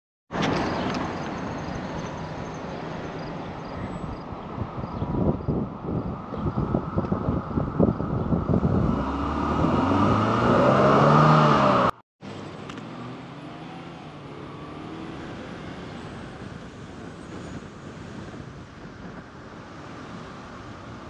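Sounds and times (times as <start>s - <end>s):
wind buffeting microphone: 3.5s - 11.9s, 14.2s - 21.0s
vehicle engine accelerating: 6.8s - 17.5s.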